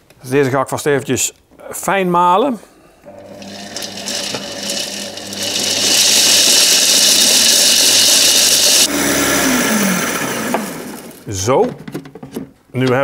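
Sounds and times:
blade spinning down whine: 3.1 - 10.8
food processor grinding: 3.1 - 11.3.

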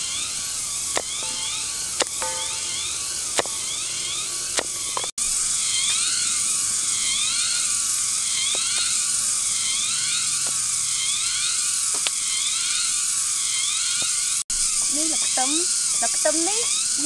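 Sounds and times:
cicadas buzzing: 0.0 - 17.0
knife tapping on wooden board: 1.0 - 2.8.

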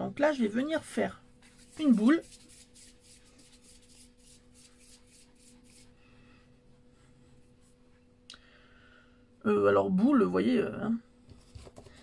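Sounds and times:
palms rubbing modelling paste: 1.4 - 6.0.

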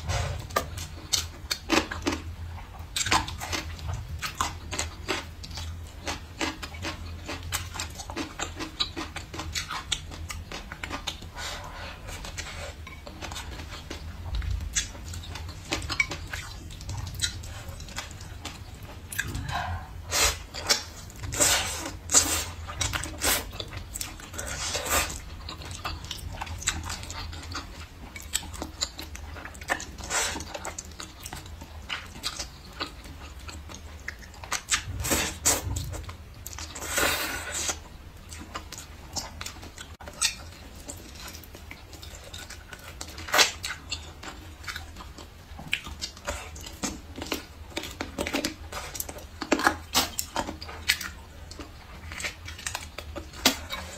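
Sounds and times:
wet chewing and lip smacking: 0.0 - 53.9
slurping noodles: 19.2 - 23.6, 36.7 - 37.8.

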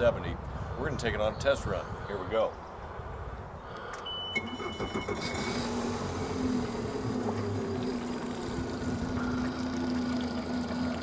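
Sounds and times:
short electronic beeps: 4.0 - 5.6
outboard engine starting and idling: 4.4 - 11.0.

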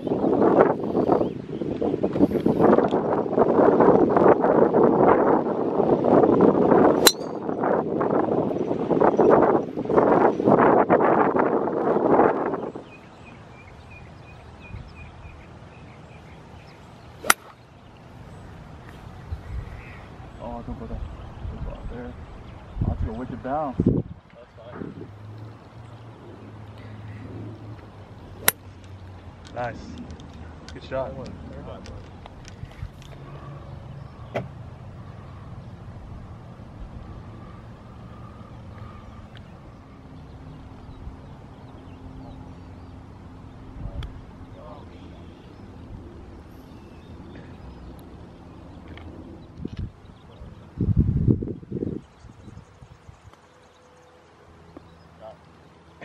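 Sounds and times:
golf club striking ball: 7.0 - 7.5, 17.2 - 17.6, 28.4 - 28.7.

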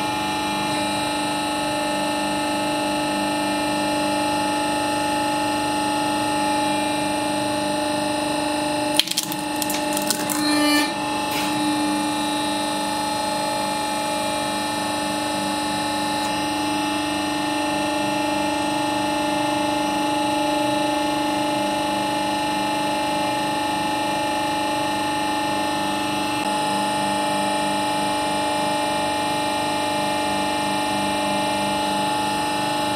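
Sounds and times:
food item cracking and crackling: 9.0 - 11.7.

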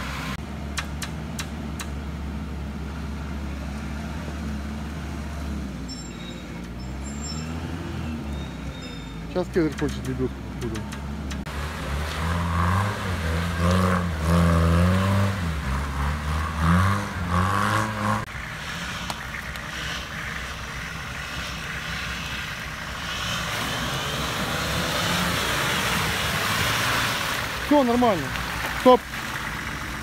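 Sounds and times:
off-road engine revving: 0.0 - 30.0
water splashing through mud: 18.6 - 30.0.

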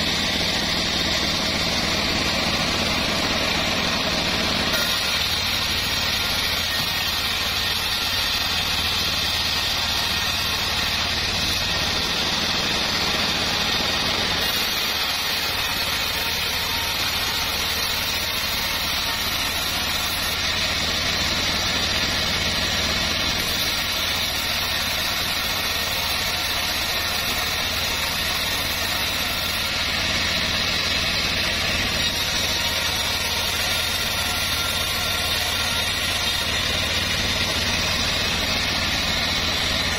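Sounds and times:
band sawmill cutting board: 0.0 - 39.9.

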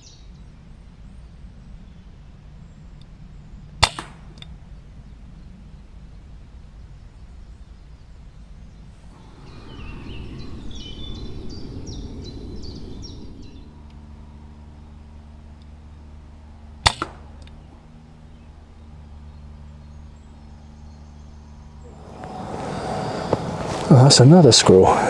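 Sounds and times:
air rifle shot: 3.8 - 4.4, 16.8 - 17.4
bird singing falling notes: 9.2 - 13.9.

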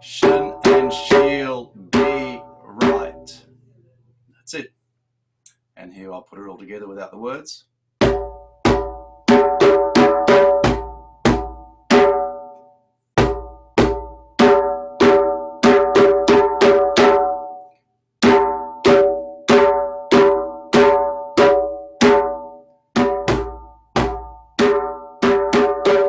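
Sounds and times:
djembe played by hand: 8.0 - 12.4, 13.2 - 17.5, 18.2 - 26.0.

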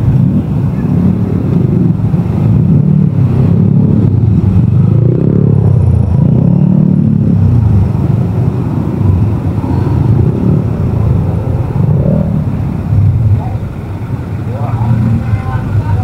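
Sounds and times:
motorcycle engines revving: 0.0 - 16.0.

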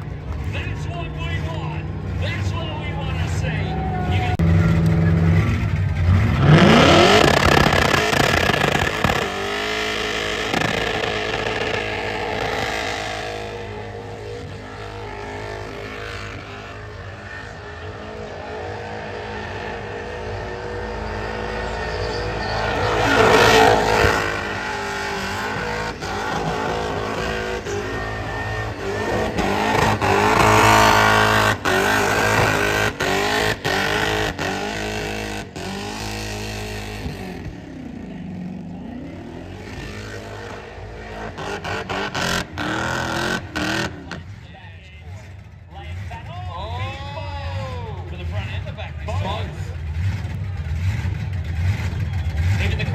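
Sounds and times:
supercharged engine revving hard: 4.2 - 44.3.

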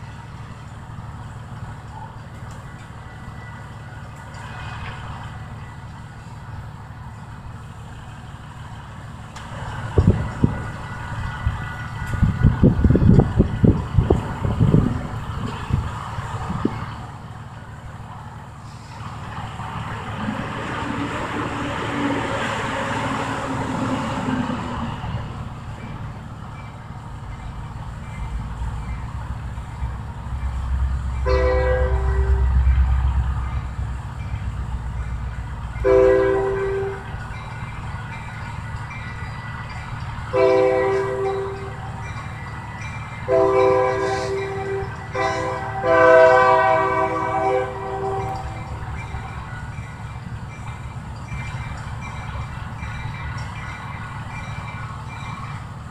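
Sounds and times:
diesel locomotive rumble: 0.0 - 55.9
train horn: 31.2 - 33.1, 35.8 - 37.2, 40.3 - 42.1, 43.2 - 48.9.

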